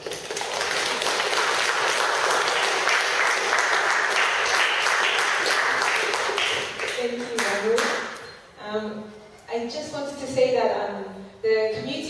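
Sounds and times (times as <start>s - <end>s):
audience applauding: 0.0s - 8.1s.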